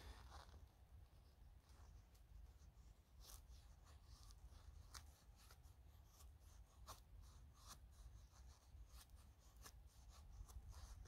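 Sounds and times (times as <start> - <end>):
knife shaving wood: 3.1 - 11.0.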